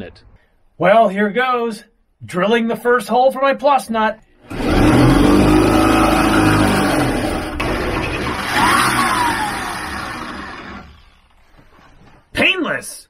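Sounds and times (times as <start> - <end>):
power drill boring through metal: 4.5 - 11.4.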